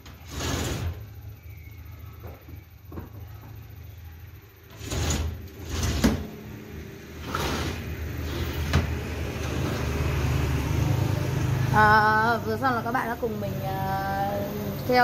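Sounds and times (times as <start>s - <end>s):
glass door sliding: 0.0s - 1.4s, 4.6s - 12.1s.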